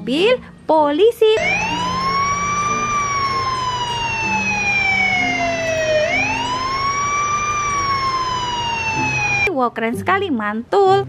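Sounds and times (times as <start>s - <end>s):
police car siren wailing: 1.4s - 9.5s.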